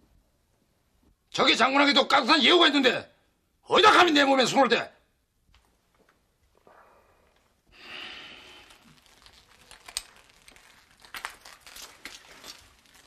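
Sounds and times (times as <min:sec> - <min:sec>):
clothing rustling: 0:08.6 - 0:13.0.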